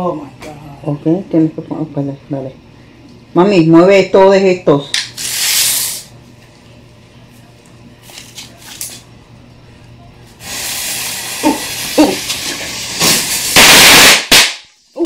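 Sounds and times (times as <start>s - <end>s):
firework hissing: 5.1s - 6.1s, 10.3s - 14.5s
firework burst: 10.4s - 14.6s.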